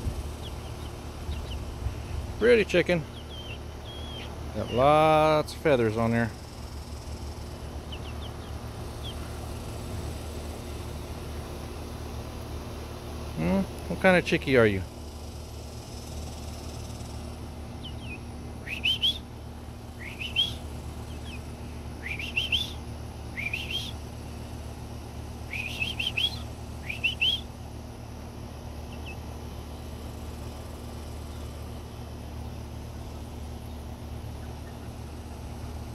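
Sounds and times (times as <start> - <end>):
chick peeping: 0.0 - 11.3, 17.8 - 19.3, 19.9 - 22.8, 28.8 - 31.8, 32.4 - 35.3
steady low hum: 0.0 - 35.9.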